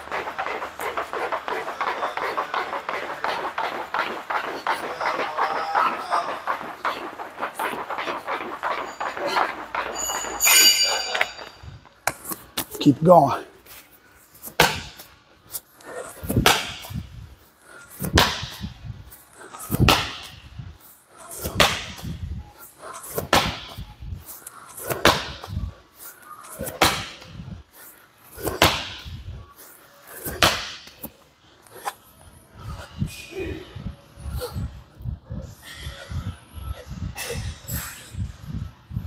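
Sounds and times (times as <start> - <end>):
slam ball hitting gym floor: 14.6 - 15.0, 19.8 - 20.4, 28.6 - 29.1, 30.4 - 30.9.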